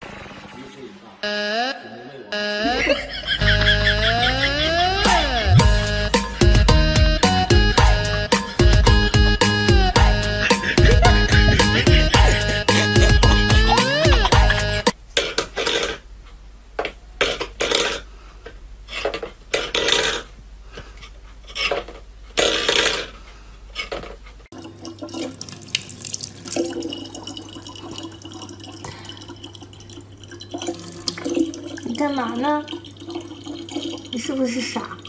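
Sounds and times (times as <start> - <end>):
faucet running: 24.5 - 35.0.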